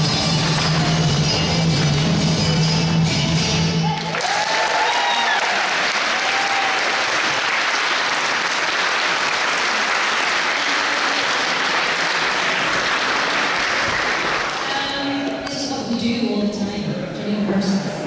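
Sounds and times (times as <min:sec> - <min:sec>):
audience applause: 0:03.9 - 0:14.8.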